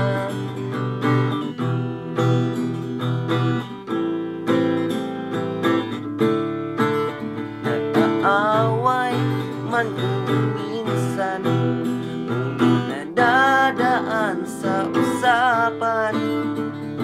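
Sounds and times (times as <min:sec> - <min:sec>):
acoustic guitar strumming chords: 0:00.0 - 0:17.0.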